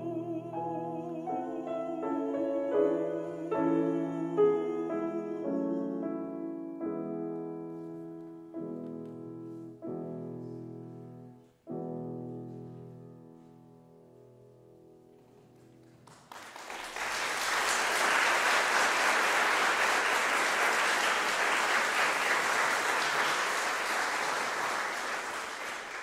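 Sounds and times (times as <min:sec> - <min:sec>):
audience applause: 0:15.8 - 0:26.0.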